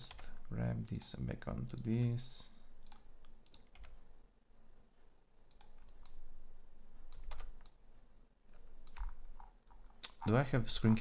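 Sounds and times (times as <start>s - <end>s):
keyboard keystrokes: 8.6s - 9.2s.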